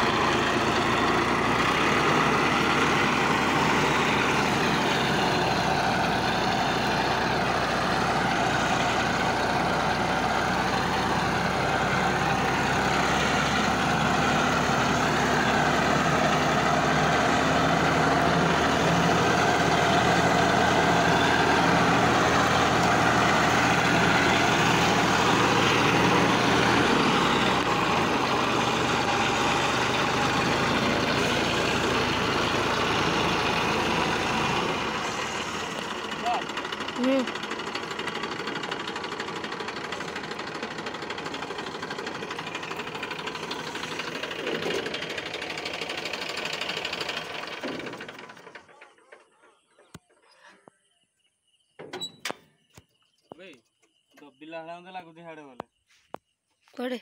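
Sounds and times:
tractor diesel engine running: 0.0 - 50.4.

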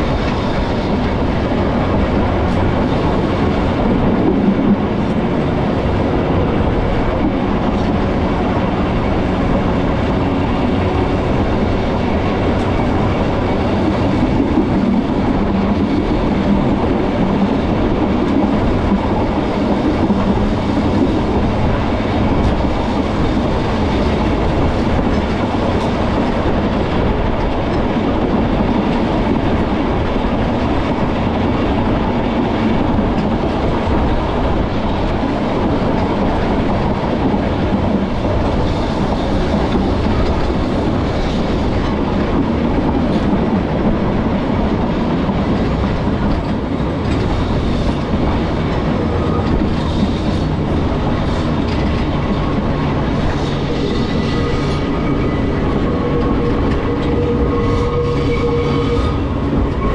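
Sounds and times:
tram wheels on rails: 0.0 - 59.9.

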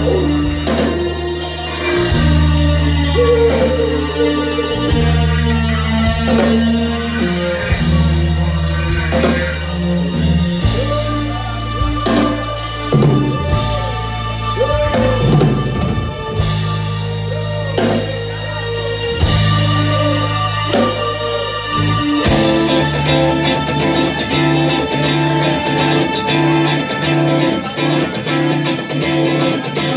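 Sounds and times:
drums with cymbal hits: 0.0 - 23.7
held low notes: 0.0 - 29.0
lead guitar line bending pitch: 0.0 - 29.9.

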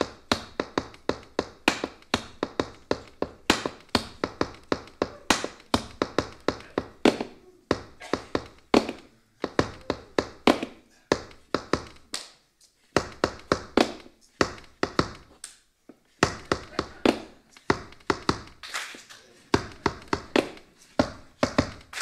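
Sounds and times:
tap shoes striking stage floor: 0.0 - 12.1, 13.0 - 15.4, 16.2 - 18.6, 19.6 - 22.0
heavy stamps: 19.5 - 22.0.

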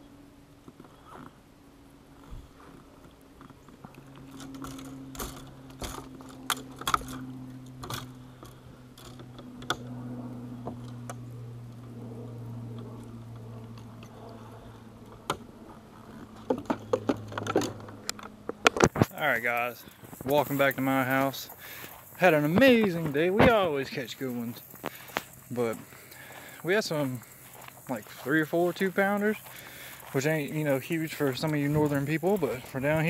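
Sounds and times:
low motor hum: 0.0 - 33.0
fishing tackle clicking and knocking: 16.3 - 19.2.

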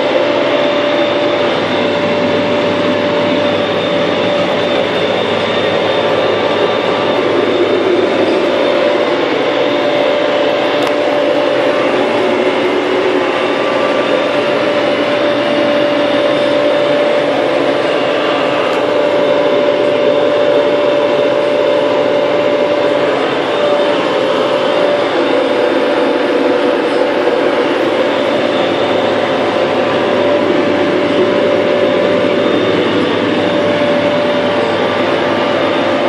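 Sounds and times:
steady whine: 0.0 - 36.0
tractor diesel engine running: 1.2 - 36.0.

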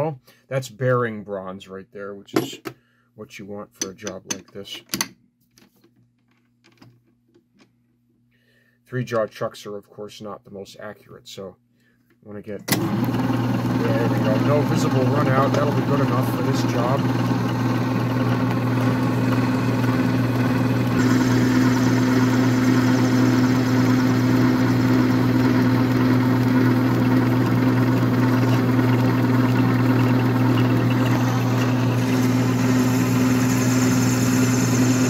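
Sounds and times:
lathe motor hum: 12.7 - 35.0.

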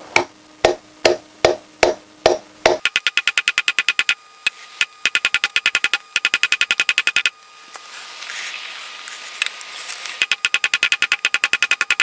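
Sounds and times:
fast ringing ticking: 2.8 - 4.2, 4.8 - 7.3, 10.2 - 12.0.

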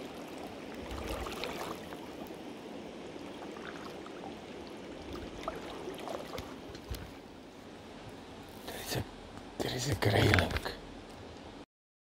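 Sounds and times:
river flowing over stones: 0.0 - 8.5
small ticks and trickles: 0.0 - 11.5.

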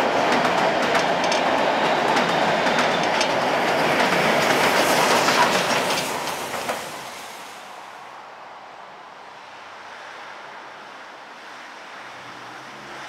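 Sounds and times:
wheels clicking over rail joints: 0.0 - 6.8
train rolling past: 0.0 - 8.2.

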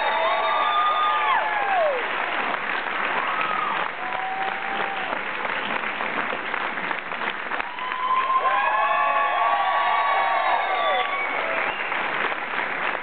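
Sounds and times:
voices cheering: 0.0 - 2.2, 3.2 - 5.2, 7.6 - 12.0
audience applauding: 0.0 - 13.0.

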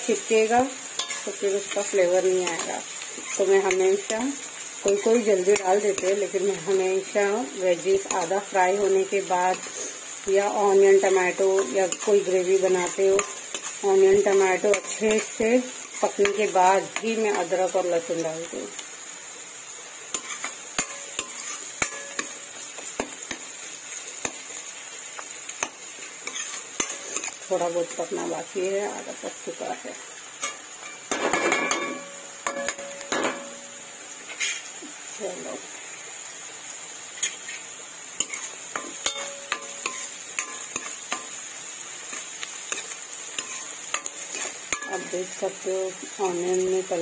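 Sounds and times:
frying hiss: 0.0 - 47.0
metal spatula scraping pan: 0.9 - 4.1, 20.1 - 22.4, 26.2 - 27.4, 34.3 - 34.7, 38.2 - 41.3, 42.8 - 45.2
metal spoon clinking in a pan: 1.0 - 1.8, 11.0 - 17.5, 20.1 - 22.4, 30.4 - 33.6, 38.2 - 41.4, 42.1 - 45.3.

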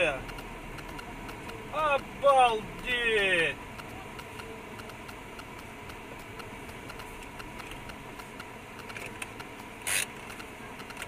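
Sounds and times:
car engine and road noise: 0.0 - 11.0
turn signal ticking: 0.0 - 11.0.

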